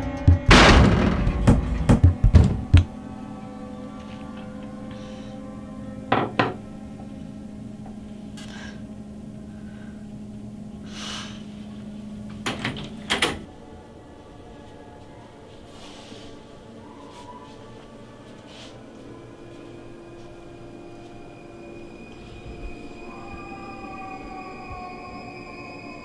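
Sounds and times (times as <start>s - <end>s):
steady low hum: 0.0s - 26.0s
knocking on a door: 0.3s - 2.9s.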